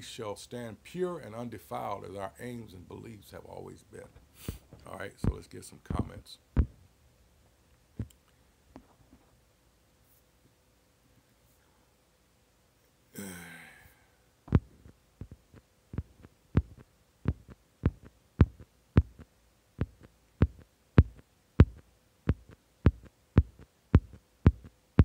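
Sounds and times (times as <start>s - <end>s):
short breathy sound: 4.3s - 4.7s
sharp low taps: 4.5s - 6.8s, 14.5s - 24.7s.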